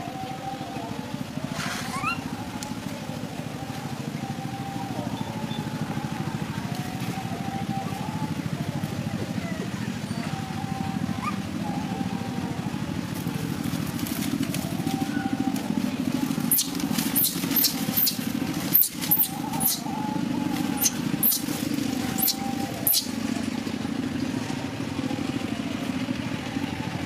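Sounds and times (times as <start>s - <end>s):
small engine puttering: 0.0s - 27.0s
high-pitched chirps: 22.1s - 23.2s.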